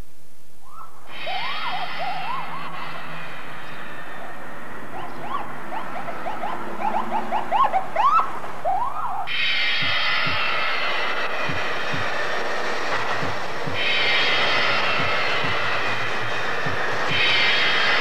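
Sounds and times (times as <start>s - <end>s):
steady hiss: 0.0s - 7.1s, 9.3s - 18.0s
rising and falling chirps: 0.6s - 11.0s.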